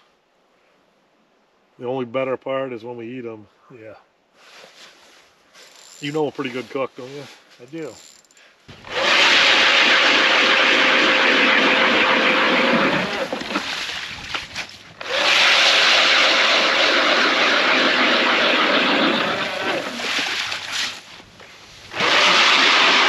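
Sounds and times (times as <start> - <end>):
power ice auger boring: 8.7 - 13.7, 15.0 - 20.2, 21.9 - 23.0.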